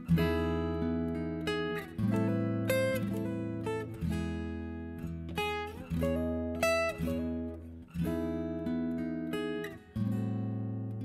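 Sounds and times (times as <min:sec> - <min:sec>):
fingerstyle acoustic guitar: 0:00.0 - 0:11.0.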